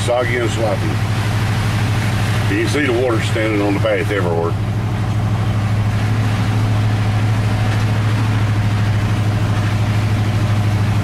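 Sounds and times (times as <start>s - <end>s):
truck engine droning: 0.0s - 11.0s.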